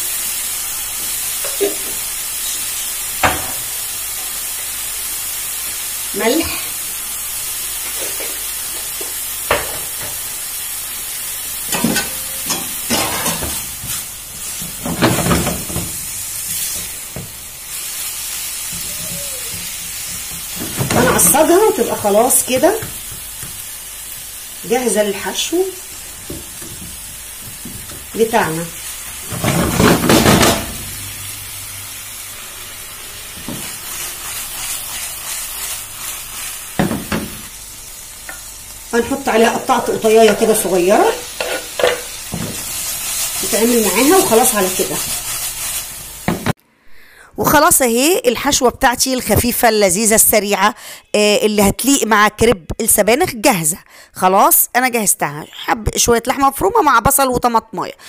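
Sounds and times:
meat sizzling in a frying pan: 0:00.0 - 0:46.6
spatula scraping a pan: 0:39.4 - 0:45.9.

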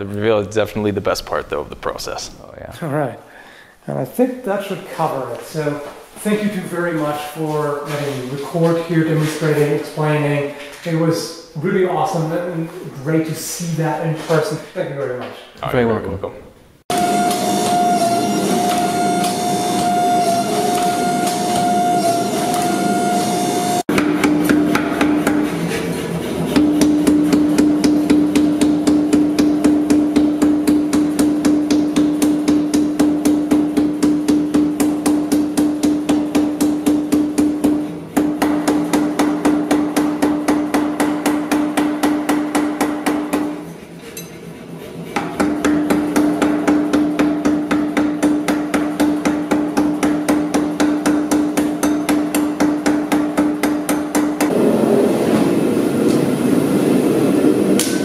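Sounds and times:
power hammer striking steel: 0:16.9 - 0:25.4, 0:26.6 - 0:43.6, 0:45.2 - 0:56.2, 0:57.8 - 0:58.0
steady hum: 0:36.8 - 0:58.0.

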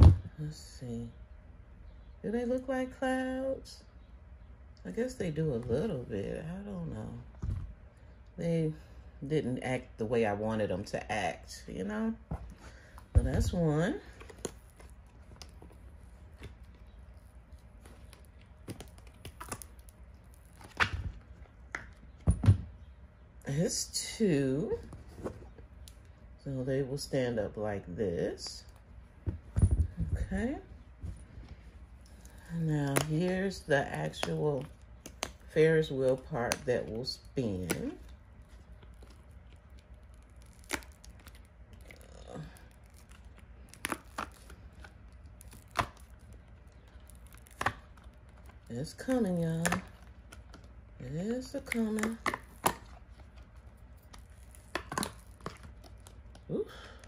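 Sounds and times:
silicone mold rubbery rustling: 0:12.1 - 0:23.2, 0:28.6 - 0:56.5.

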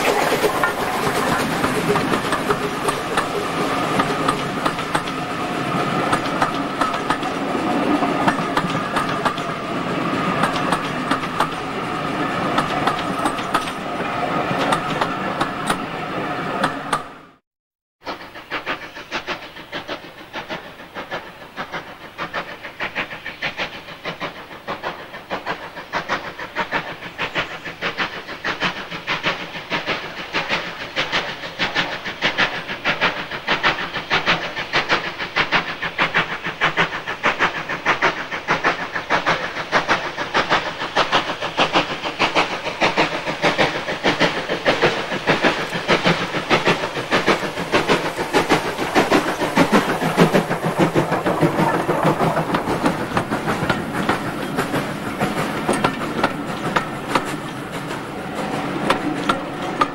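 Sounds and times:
train wheels clattering over rail joints: 0:00.0 - 0:15.9, 0:18.1 - 0:59.9
steam locomotive exhaust beats: 0:00.0 - 0:17.4, 0:18.0 - 0:59.9.

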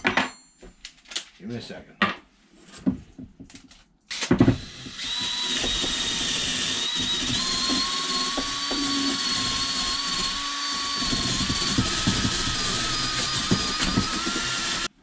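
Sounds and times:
drill motor whine: 0:04.2 - 0:14.9.

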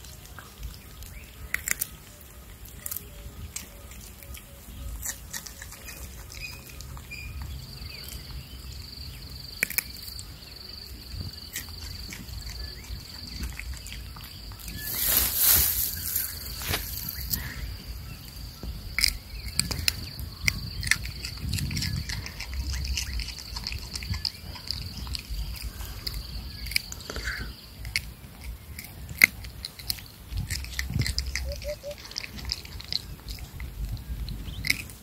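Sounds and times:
high insect trill: 0:08.8 - 0:19.3.

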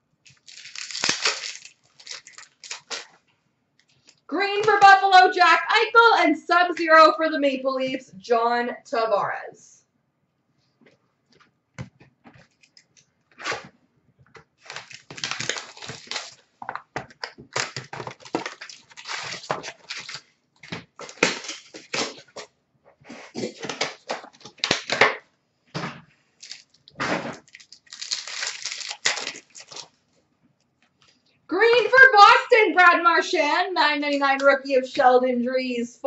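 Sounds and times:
wrappers tearing and crinkling: 0:00.2 - 0:03.2, 0:14.6 - 0:22.5, 0:23.3 - 0:25.0, 0:26.4 - 0:30.0
cards rustling: 0:00.3 - 0:03.1, 0:14.6 - 0:22.5, 0:26.4 - 0:29.9.

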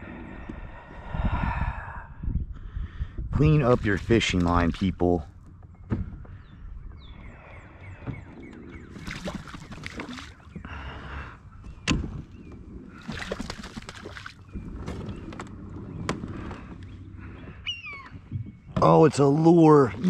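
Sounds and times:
wings beating and splashing water: 0:08.9 - 0:10.6, 0:12.9 - 0:14.6.

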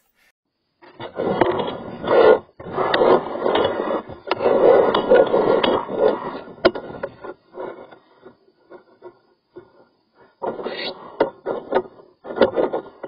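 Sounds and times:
cable scraping in drain hose: 0:01.0 - 0:08.4.

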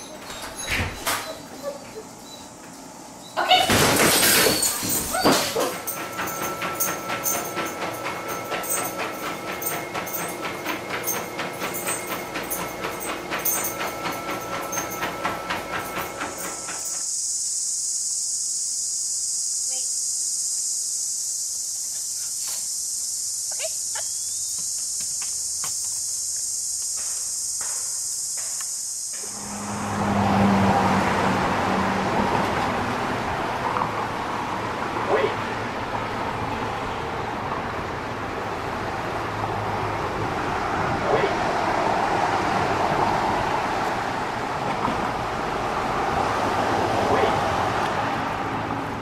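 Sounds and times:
street traffic: 0:00.0 - 0:17.1, 0:23.5 - 0:49.0
treadmill whine: 0:00.0 - 0:17.4, 0:28.4 - 0:34.9
dog footfalls on treadmill: 0:03.6 - 0:17.0
high-pitched insect chorus: 0:16.2 - 0:31.1
vehicle passing: 0:29.2 - 0:49.0.

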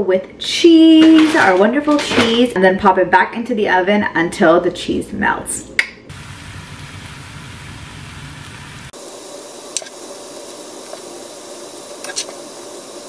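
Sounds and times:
room noise hiss: 0:06.1 - 0:13.0.

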